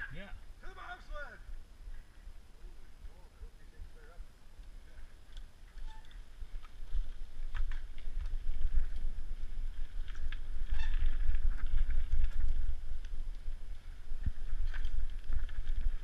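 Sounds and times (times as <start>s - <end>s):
bike rattling on bumpy trail: 5.1s - 16.0s
wind buffeting microphone: 6.2s - 16.0s.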